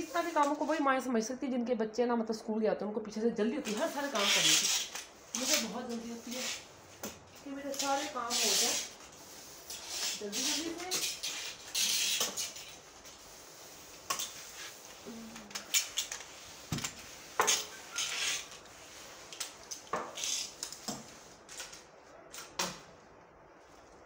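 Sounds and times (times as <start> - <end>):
mop swishing on wet floor: 3.7 - 21.8
mop knocking and clattering: 15.5 - 17.8.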